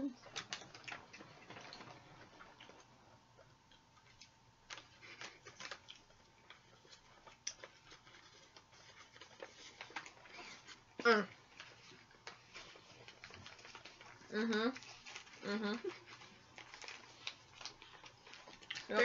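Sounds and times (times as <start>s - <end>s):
paper clicks and rustles: 4.1s - 10.8s, 11.4s - 19.0s.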